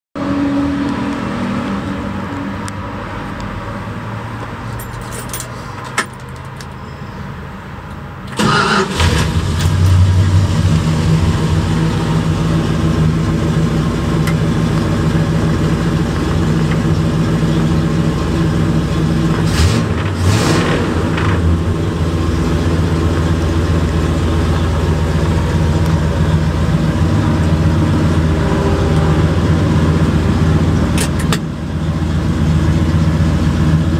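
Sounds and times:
truck engine starting and idling: 0:08.2 - 0:33.9.

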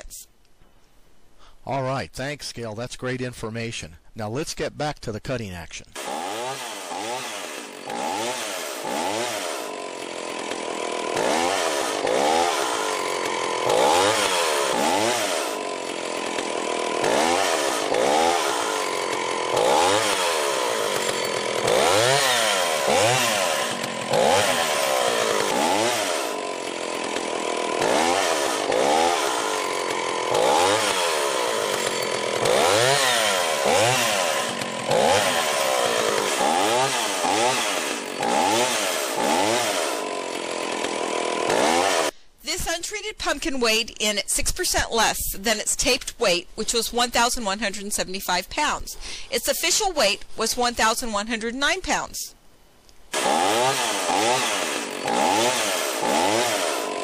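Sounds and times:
chainsaw revving through pumpkin: 0:06.0 - 0:42.2, 0:53.1 - 0:57.0.

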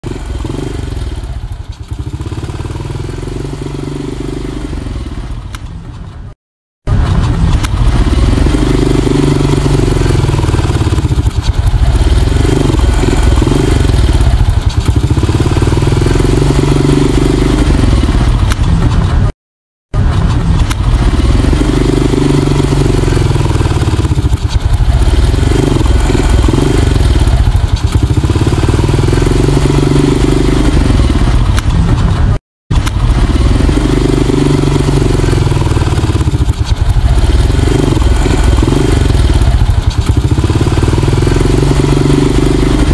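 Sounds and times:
moped engine revving: 0:00.0 - 0:19.3, 0:20.0 - 0:42.9.

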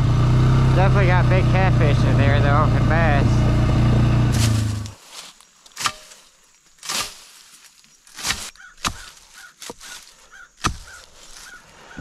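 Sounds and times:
footsteps crunching through dry leaves: 0:04.2 - 0:11.8.

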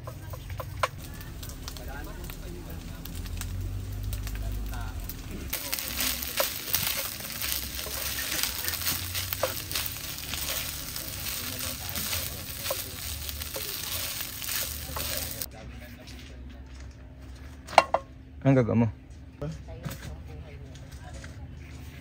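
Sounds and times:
food sizzling in a pan: 0:00.0 - 0:15.5.

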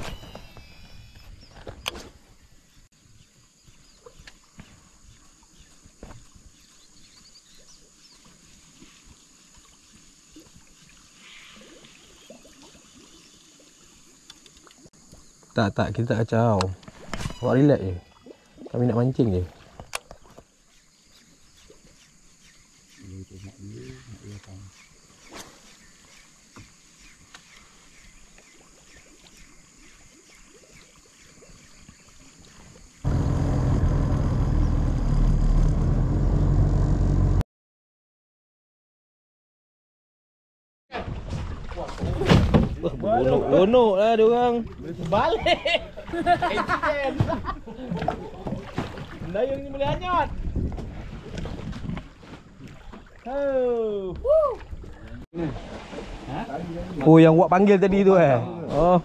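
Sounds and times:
water lapping softly: 0:03.0 - 0:14.9, 0:16.7 - 0:33.0, 0:44.3 - 0:57.1
small ticks: 0:14.2 - 0:15.2
boat engine running: 0:33.0 - 0:37.4.

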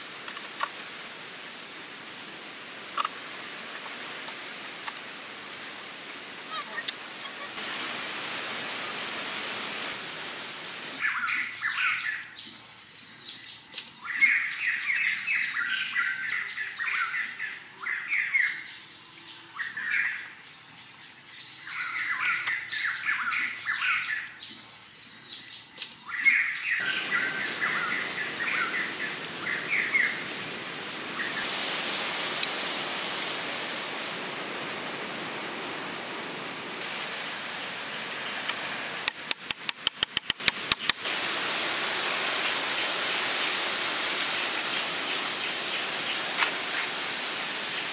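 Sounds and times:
steady hiss: 0:00.0 - 0:47.9
birds chirping and singing: 0:11.0 - 0:31.5.

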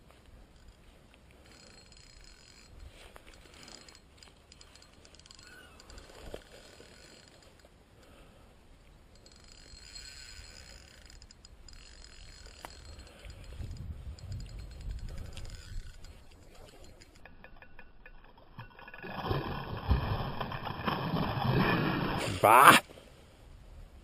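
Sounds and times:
fishing reel whirring and clicking: 0:01.4 - 0:07.7, 0:09.1 - 0:20.8.

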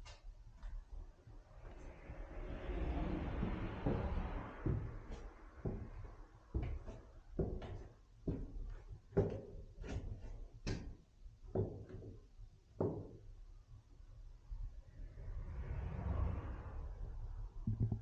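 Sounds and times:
footsteps on wooden stairs: 0:03.3 - 0:11.0.

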